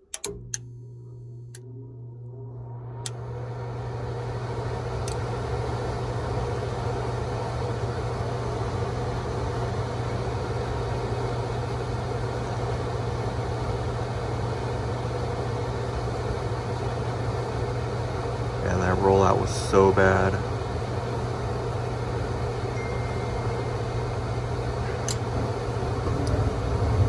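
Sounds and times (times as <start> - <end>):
furnace inducer motor humming: 0.0 - 27.0
sharp click: 0.1 - 0.7, 25.0 - 25.2.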